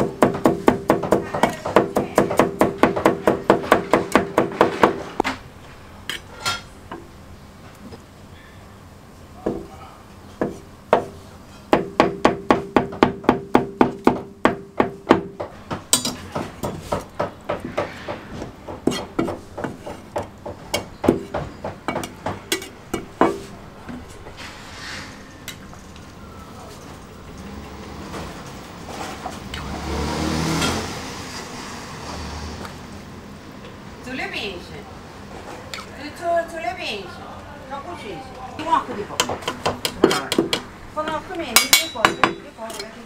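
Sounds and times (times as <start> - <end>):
cleaver chopping on wooden block: 18.7 - 22.4.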